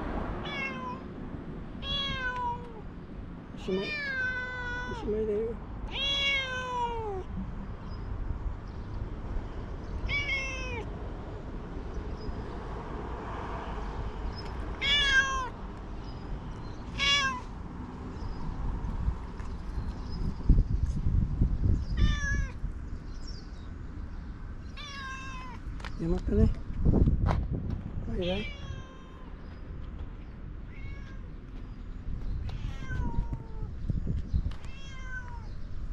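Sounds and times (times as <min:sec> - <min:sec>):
cat meowing: 0:00.4 - 0:01.1, 0:01.8 - 0:02.8, 0:03.7 - 0:05.1, 0:05.9 - 0:07.3, 0:10.0 - 0:10.9, 0:14.8 - 0:15.6, 0:17.0 - 0:17.5, 0:22.0 - 0:22.6, 0:24.8 - 0:25.6, 0:28.2 - 0:29.3, 0:30.6 - 0:31.3, 0:32.4 - 0:33.7, 0:34.6 - 0:35.6.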